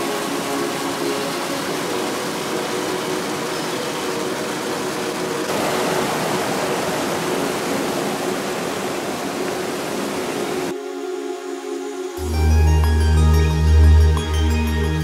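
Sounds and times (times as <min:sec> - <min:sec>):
fast-flowing water rushing: 0:00.0 - 0:12.1.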